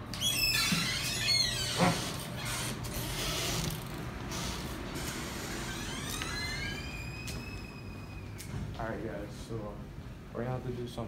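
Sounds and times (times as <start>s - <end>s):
metal door creaking: 0.0s - 8.8s
rising squeak: 0.1s - 3.7s, 4.3s - 8.5s.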